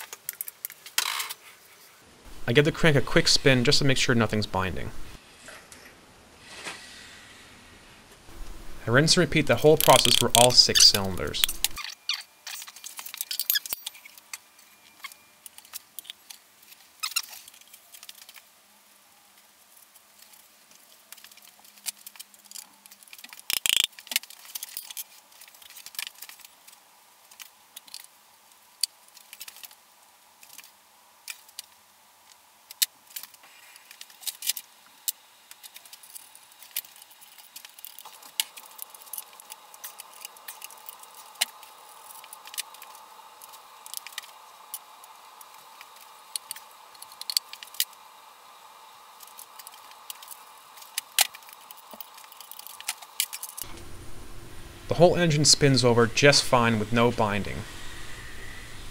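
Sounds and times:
metallic clinks of tools and parts: 9.8 - 16.3.

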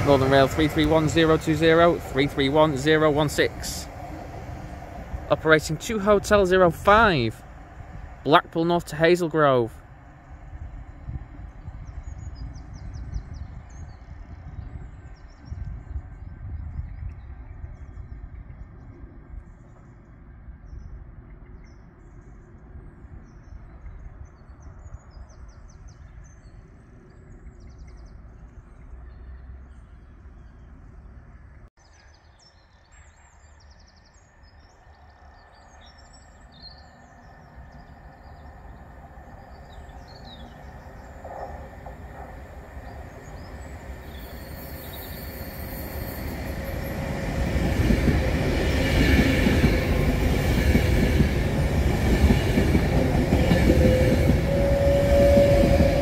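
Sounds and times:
train approaching: 0.0 - 16.4, 34.2 - 56.0
train rumbling: 0.0 - 21.5, 34.4 - 56.0
small birds chirping: 31.8 - 48.8.

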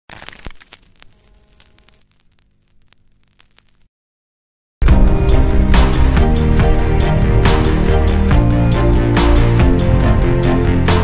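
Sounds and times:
crackling sound effect: 0.1 - 3.9.

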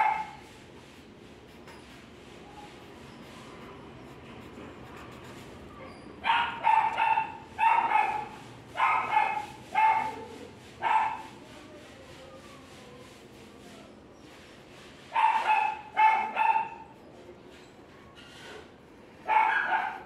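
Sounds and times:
dog barking: 0.0 - 0.4, 6.2 - 11.3, 15.1 - 16.9, 19.2 - 20.0.

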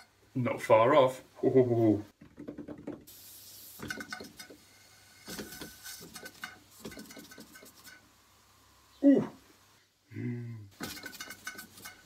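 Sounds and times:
steam engine clicking and puffing: 2.8 - 8.0, 10.8 - 12.0.

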